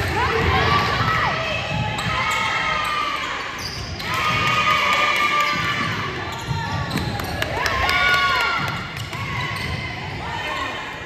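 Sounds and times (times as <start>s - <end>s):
basketball bouncing: 4.0s - 9.8s.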